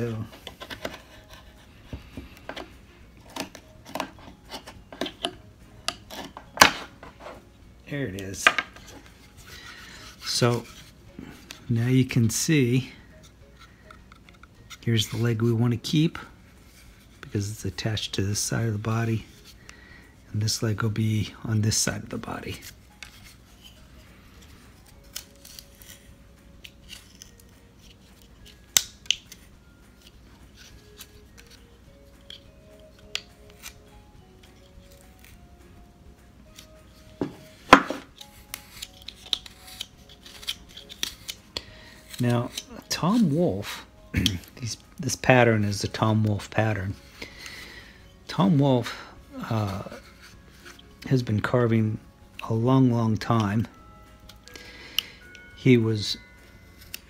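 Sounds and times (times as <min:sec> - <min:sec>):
knife slicing and scraping wood: 0:00.4 - 0:01.7, 0:24.8 - 0:29.4, 0:33.0 - 0:35.4, 0:36.5 - 0:43.4
knife cutting wood: 0:00.4 - 0:07.4, 0:24.8 - 0:26.0, 0:30.0 - 0:35.4, 0:36.5 - 0:43.1
wood chunk snapping off: 0:28.7 - 0:29.4.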